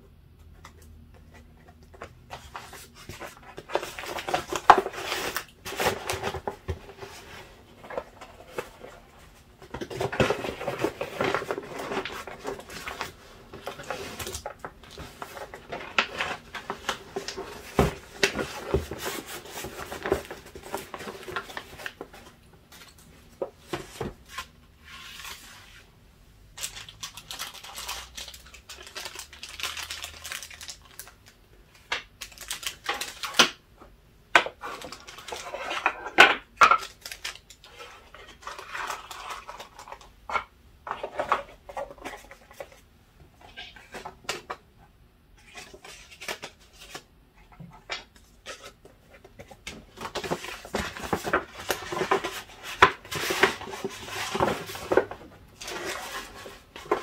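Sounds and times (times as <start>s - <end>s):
paper packaging rustling: 0.7s - 25.9s, 26.5s - 33.6s, 34.5s - 42.8s, 45.4s - 57.0s
cardboard boxes tapping and clicking: 15.3s - 22.1s.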